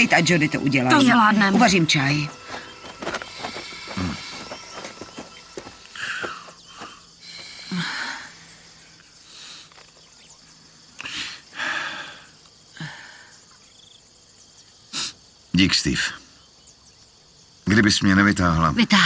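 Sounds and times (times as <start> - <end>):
person breathing heavily: 2.4 - 9.7, 11.0 - 13.4.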